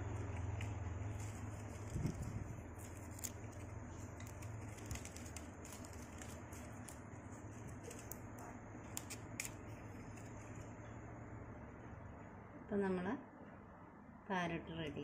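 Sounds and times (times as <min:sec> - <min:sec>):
leaf strips rustling and crackling: 0:00.0 - 0:10.7
low steady hum: 0:00.0 - 0:15.0.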